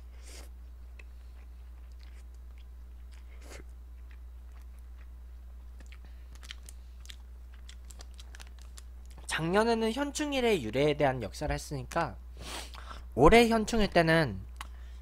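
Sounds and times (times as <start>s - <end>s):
person chewing noodles: 0.0s - 9.3s.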